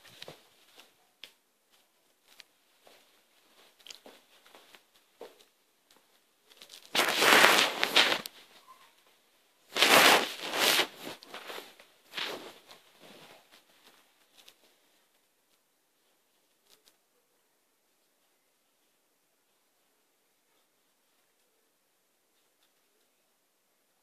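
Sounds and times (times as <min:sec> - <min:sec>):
puppy scuffing at microphone: 0:06.9 - 0:08.3, 0:09.8 - 0:13.6.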